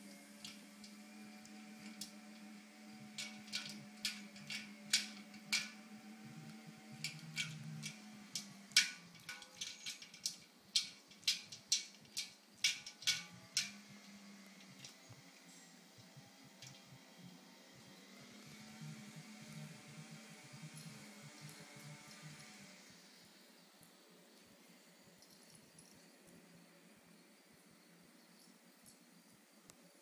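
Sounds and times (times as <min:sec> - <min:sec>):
ice cubes clinking on metal bowl: 0:03.1 - 0:05.9, 0:06.8 - 0:13.8.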